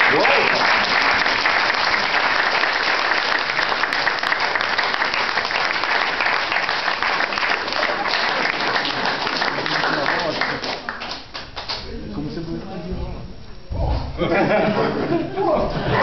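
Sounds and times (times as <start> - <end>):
crowd applauding: 0.0 - 11.8.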